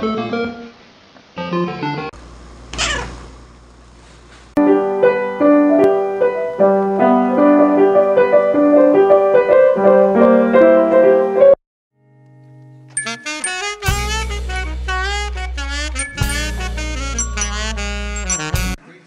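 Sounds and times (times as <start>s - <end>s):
piano music: 4.6s - 11.6s, 12.8s - 18.8s.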